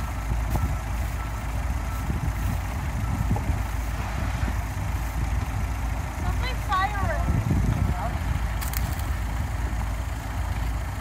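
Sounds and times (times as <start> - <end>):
truck engines rumbling: 0.0 - 11.0.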